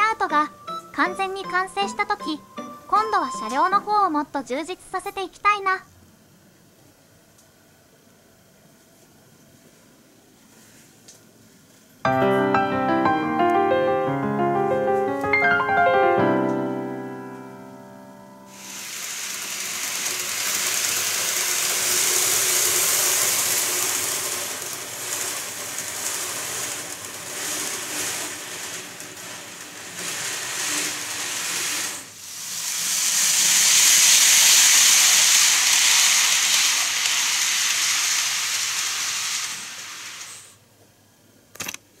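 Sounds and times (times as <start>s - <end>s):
loud rushing hiss: 18.3s - 40.6s.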